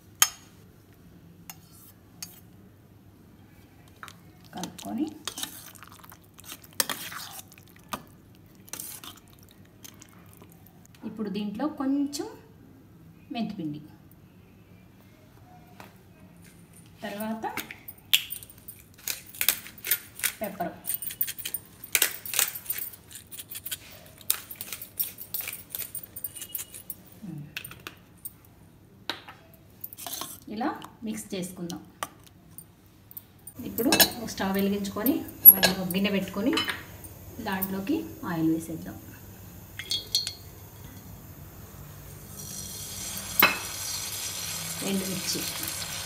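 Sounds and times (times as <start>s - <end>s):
pepper mill grinding: 18.1s - 27.0s, 42.3s - 46.0s
oil hissing and sizzling in pot: 34.0s - 46.0s.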